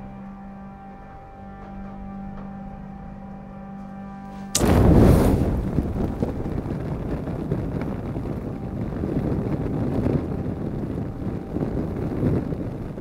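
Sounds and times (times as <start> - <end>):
fire igniting with whoosh: 4.5 - 13.0
flames burning: 4.5 - 13.0.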